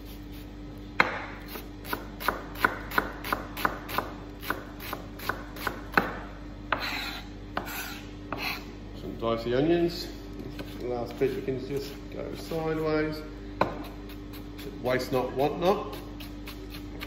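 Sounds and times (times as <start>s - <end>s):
knife scrape: 0.0s - 0.6s, 6.7s - 8.8s, 10.4s - 12.7s, 15.9s - 17.0s
knife chopping on plastic board: 1.0s - 8.6s.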